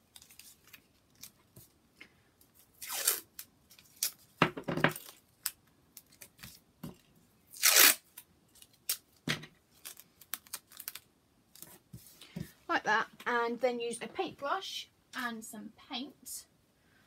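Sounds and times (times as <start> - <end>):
tape handling noises: 2.4 - 12.1
masking tape ripping off roll: 2.8 - 4.2, 7.5 - 8.2, 9.8 - 11.1.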